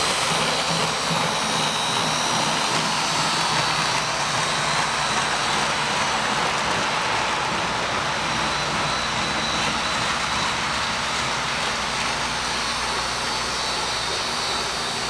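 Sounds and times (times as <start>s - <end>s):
model trains whirring: 0.0s - 15.0s.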